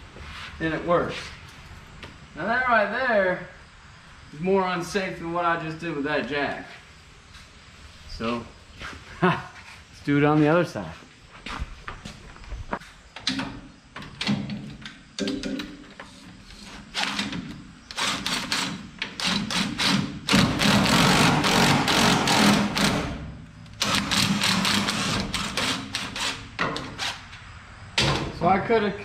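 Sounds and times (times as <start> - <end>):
jack clanking and knocking on metal: 13.2 - 16.0.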